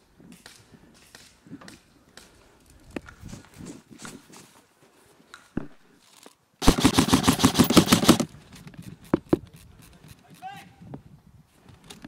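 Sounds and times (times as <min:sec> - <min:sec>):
airsoft gun full-auto burst: 0:06.6 - 0:08.3.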